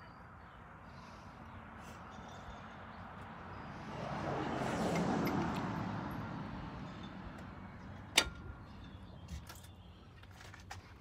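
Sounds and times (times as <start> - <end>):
passing car road noise: 0.7 - 9.3.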